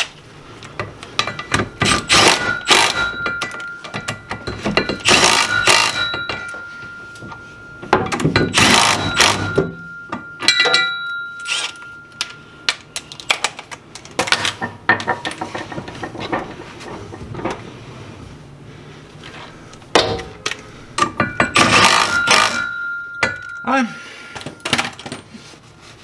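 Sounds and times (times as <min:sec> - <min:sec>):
tools clicking and knocking on metal: 0:00.6 - 0:17.6, 0:19.9 - 0:23.7
ringing metal clang: 0:01.2 - 0:13.0, 0:21.0 - 0:25.3.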